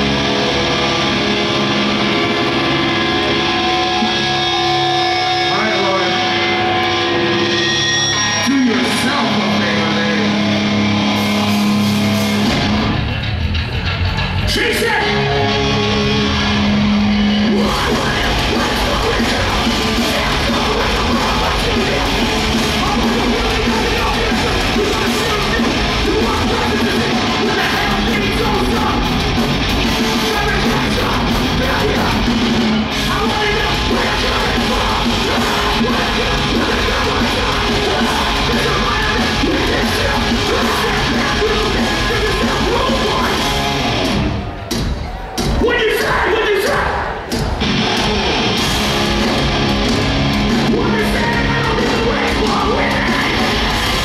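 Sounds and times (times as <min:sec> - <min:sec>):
punk band playing live: 0:00.0 - 0:54.0
shouted vocals: 0:14.4 - 0:54.0.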